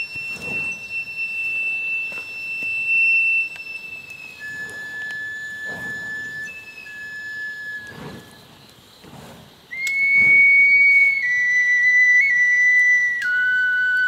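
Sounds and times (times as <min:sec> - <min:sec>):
soft low whooshes: 0:00.0 - 0:01.1
flute playing long held notes: 0:00.0 - 0:08.4, 0:09.7 - 0:14.0.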